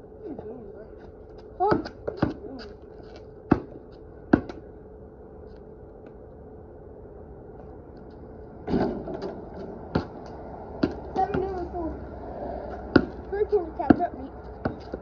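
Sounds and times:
faint steady hum: 0:00.0 - 0:15.0
basketball knocks on concrete: 0:03.5 - 0:04.6, 0:12.9 - 0:13.2.

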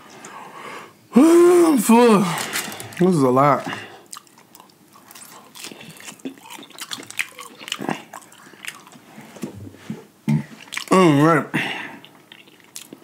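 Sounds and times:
chewing: 0:03.7 - 0:09.1, 0:10.6 - 0:11.0, 0:12.0 - 0:13.0.

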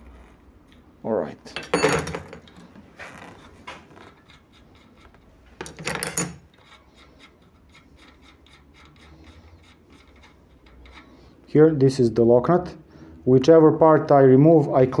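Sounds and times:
metal threads clicking and rubbing: 0:03.9 - 0:11.4.

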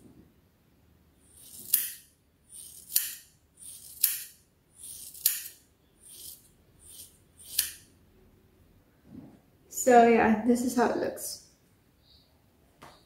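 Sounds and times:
scissors snipping hair: 0:01.4 - 0:02.0, 0:02.6 - 0:04.3, 0:04.9 - 0:07.8.

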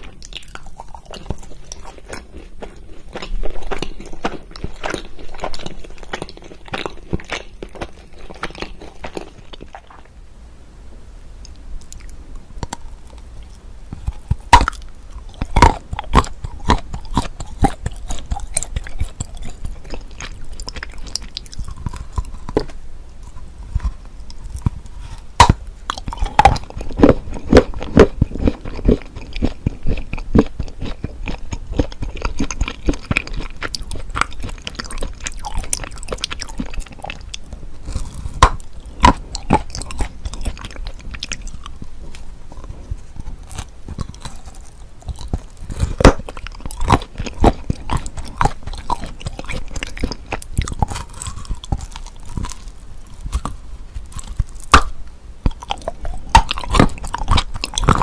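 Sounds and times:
crunching and chewing: 0:00.0 - 0:10.2, 0:11.4 - 0:58.0
chocolate snapping: 0:30.4 - 0:41.8, 0:43.4 - 0:58.0.

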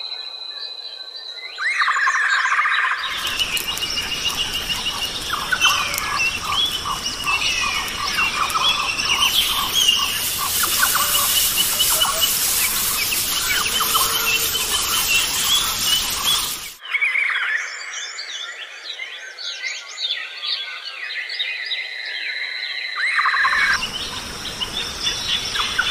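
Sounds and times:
quickly repeated bird notes: 0:03.0 - 0:16.8
steady background hiss: 0:03.0 - 0:16.8, 0:23.5 - 0:25.9
birds calling and chirping: 0:03.0 - 0:17.0, 0:23.2 - 0:25.9.

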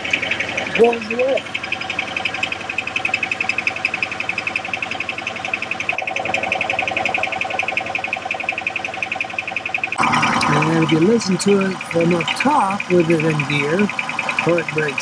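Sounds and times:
car engine idling with ticking: 0:00.0 - 0:15.0.

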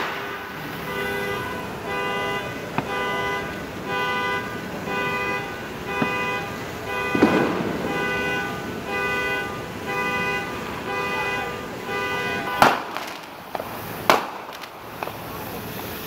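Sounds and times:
firework bang: 0:00.0 - 0:01.9, 0:05.9 - 0:10.9, 0:12.0 - 0:15.9
car horn honking: 0:00.0 - 0:14.6.

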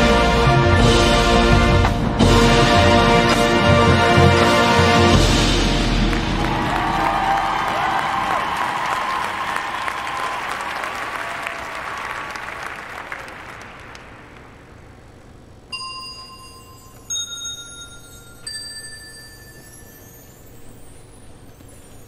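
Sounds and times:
crowd applause: 0:05.0 - 0:14.8
struck bell tones: 0:15.7 - 0:22.0.

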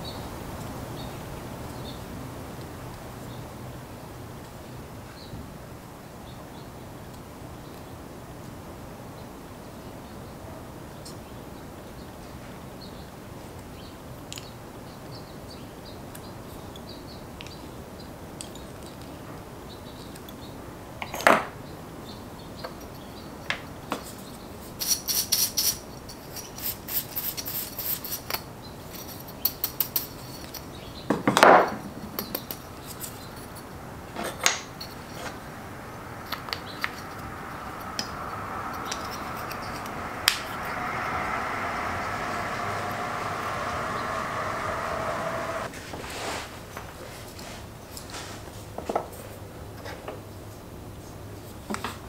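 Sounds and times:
steady hum: 0:32.6 - 0:45.7.

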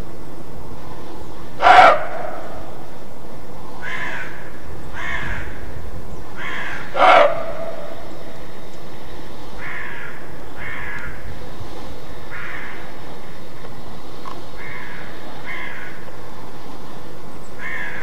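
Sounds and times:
roe deer barking: 0:01.5 - 0:03.0, 0:03.8 - 0:08.6.

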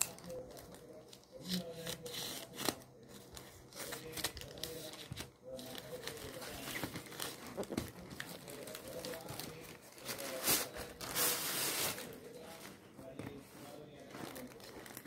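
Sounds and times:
plastic mailer bag crinkling: 0:03.3 - 0:12.5.

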